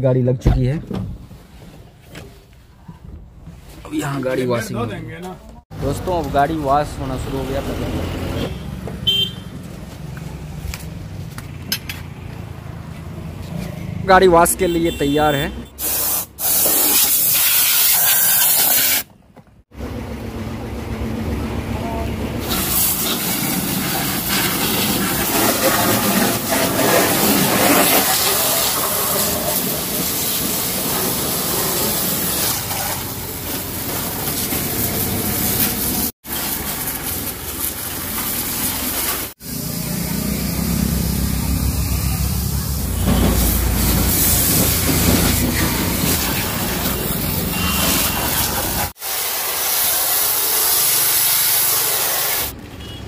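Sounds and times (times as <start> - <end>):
pressure washer spraying water: 15.8 - 19.1, 22.4 - 52.6.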